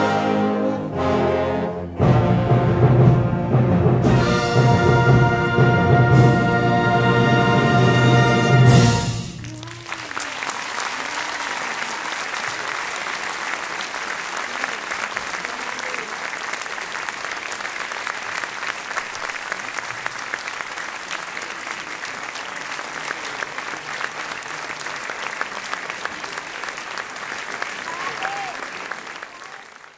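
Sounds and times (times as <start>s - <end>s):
audience applauding: 8.1s - 29.9s.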